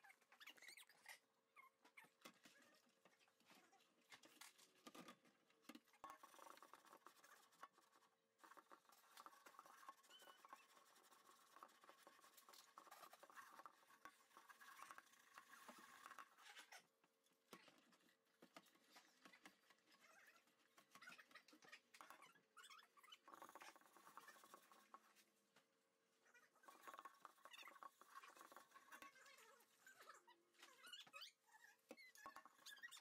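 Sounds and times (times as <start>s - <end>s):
sponge scrubbing a pot: 6.0s - 16.6s, 23.2s - 25.2s, 26.6s - 30.2s.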